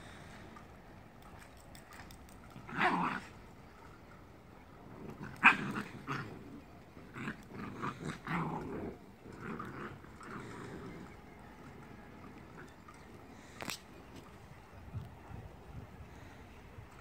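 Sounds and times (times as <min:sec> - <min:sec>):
dogs growling in play: 0:02.5 - 0:03.5, 0:04.8 - 0:13.6.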